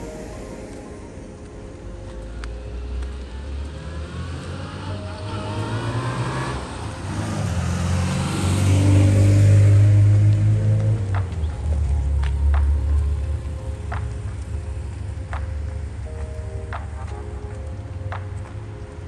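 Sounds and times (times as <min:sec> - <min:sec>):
vehicle engine rumble: 0:00.0 - 0:19.0.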